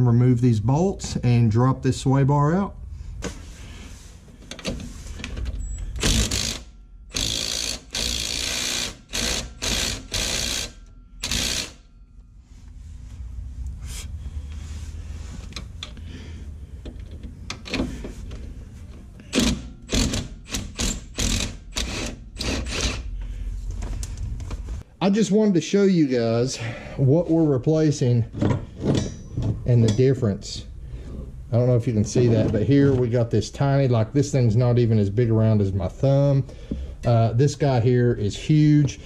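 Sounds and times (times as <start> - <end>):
power ratchet bursts: 5.9 - 11.8, 19.2 - 23.1.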